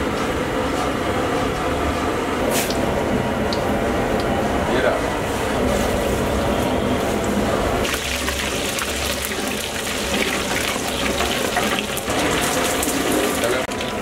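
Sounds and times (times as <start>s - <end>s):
spices sizzling in hot oil: 7.8s - 14.0s.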